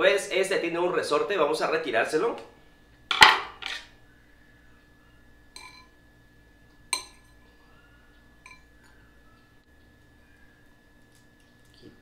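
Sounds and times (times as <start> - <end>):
metal clinking against glass bowl: 5.6 - 5.9, 6.9 - 7.4, 8.4 - 8.7.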